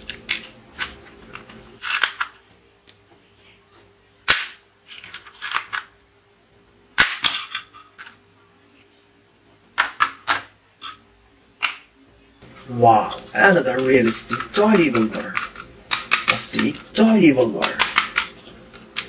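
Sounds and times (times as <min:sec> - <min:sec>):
plastic toy gun clacks: 0:17.6 - 0:18.3.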